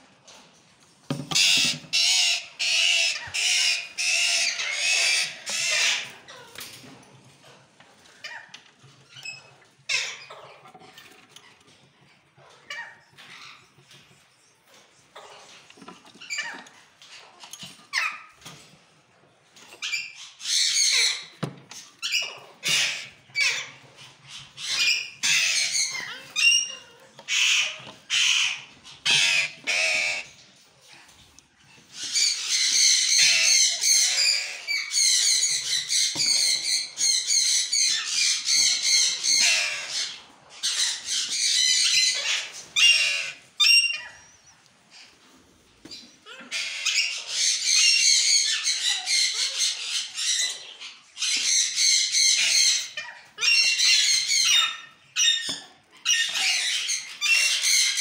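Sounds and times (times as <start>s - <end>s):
parakeets calling harshly: 1.2s - 6.6s, 22.0s - 30.4s, 31.8s - 45.1s, 46.4s - 58.0s.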